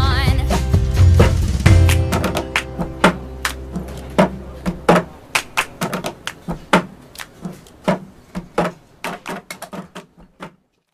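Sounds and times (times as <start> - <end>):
held music notes: 0.0 - 10.0
sharp clicks and knocks: 2.0 - 10.9.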